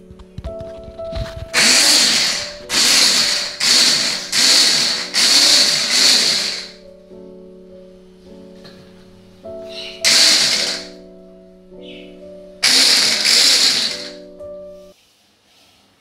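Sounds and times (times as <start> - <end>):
background music: 0.0 - 15.0
hand blender motor pulsing: 1.6 - 6.8, 10.0 - 11.0, 12.6 - 14.2.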